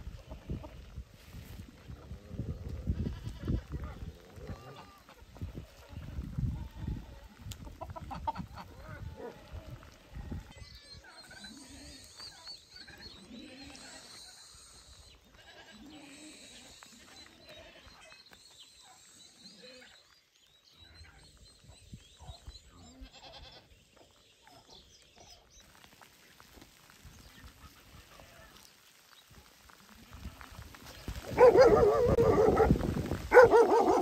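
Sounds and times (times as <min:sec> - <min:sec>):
goats and sheep bleating: 0:02.0 - 0:18.1, 0:22.8 - 0:23.8, 0:29.5 - 0:31.4.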